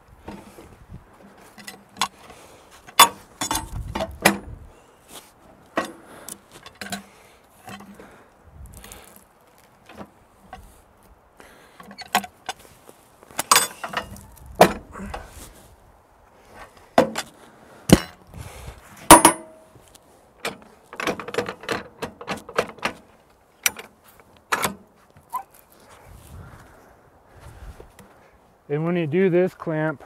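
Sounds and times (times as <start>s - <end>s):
dull thuds of log: 13.4s - 15.3s, 17.9s - 18.2s
metal clanks of cant hook: 19.1s - 19.5s.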